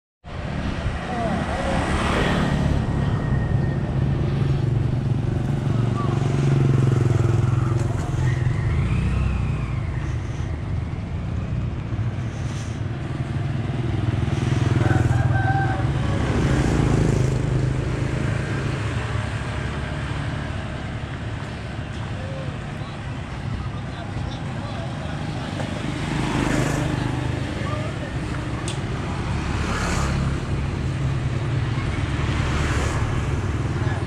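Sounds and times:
motor scooters passing: 0.4s - 34.0s.

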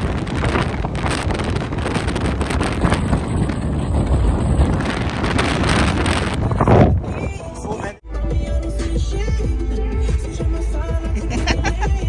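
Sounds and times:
wind buffeting microphone: 0.0s - 8.0s
low road rumble: 0.0s - 12.0s.

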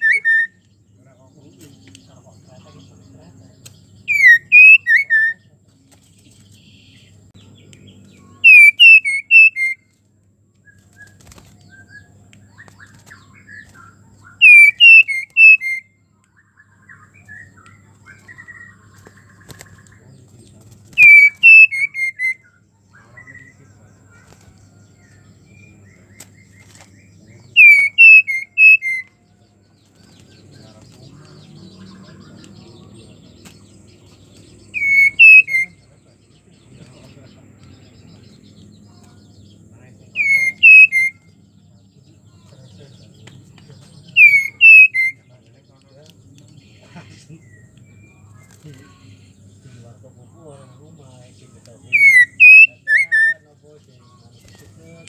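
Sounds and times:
soft bird chirps: 0.0s - 55.0s.

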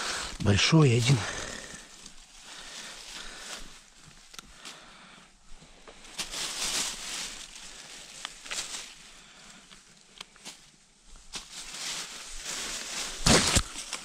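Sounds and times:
dry leaves rustling: 0.0s - 4.9s, 5.6s - 14.0s
plastic bag rustling: 6.0s - 9.3s, 11.3s - 14.0s.

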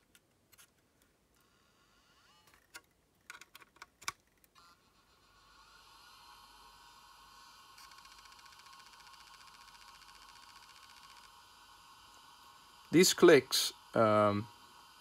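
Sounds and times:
faint high whine: 4.6s - 15.0s.

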